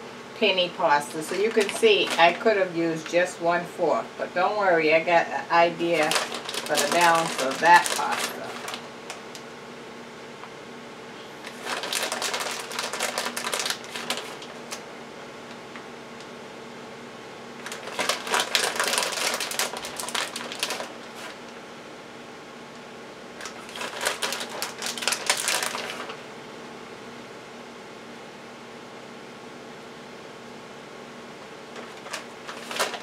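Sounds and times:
plastic bag crinkling: 1.0 - 3.2, 5.6 - 9.4, 11.4 - 14.8, 17.6 - 21.5, 23.4 - 26.2, 31.7 - 33.0.

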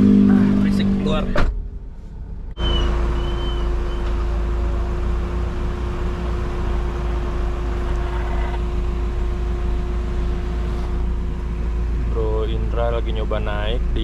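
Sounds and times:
constant hum: 0.0 - 14.0
off-road vehicle engine rumble: 0.0 - 14.0.

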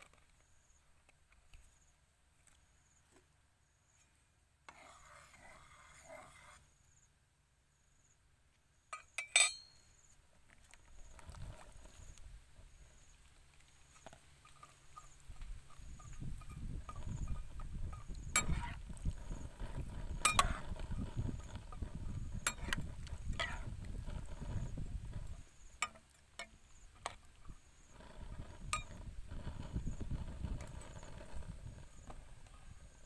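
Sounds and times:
spatula stirring vegetables in water: 4.7 - 6.6, 13.6 - 29.0.

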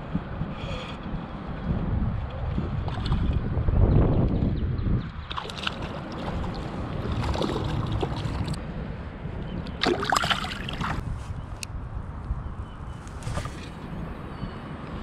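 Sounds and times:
wind rumble on microphone: 0.0 - 15.0
fish splashing in water: 5.3 - 8.6, 9.8 - 11.0.

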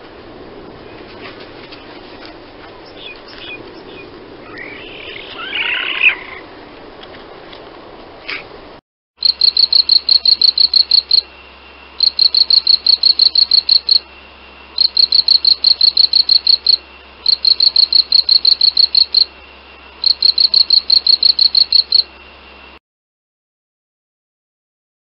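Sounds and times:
insect chirping: 9.2 - 22.8.

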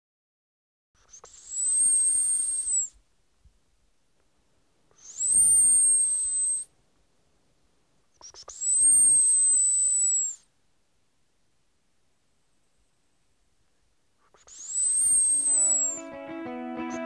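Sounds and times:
mouth clicks: 1.0 - 3.0, 8.1 - 10.4, 14.2 - 16.0
man whistling high notes: 14.7 - 17.0.

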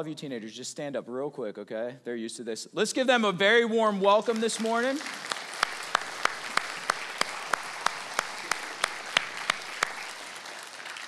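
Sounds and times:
crowd applauding: 4.0 - 11.0
close hands clapping sharply: 4.3 - 11.0.

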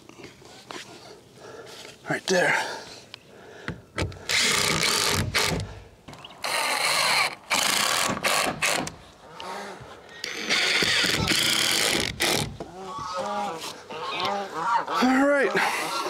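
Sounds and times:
cordless drill driving screws: 4.3 - 5.7, 6.4 - 9.0, 10.2 - 12.5.

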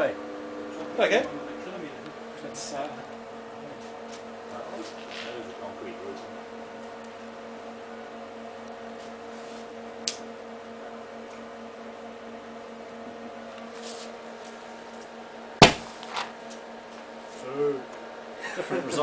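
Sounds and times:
steady hum: 0.0 - 19.0
hydrogen foam bang: 15.6 - 16.0
small pop: 15.6 - 16.3.

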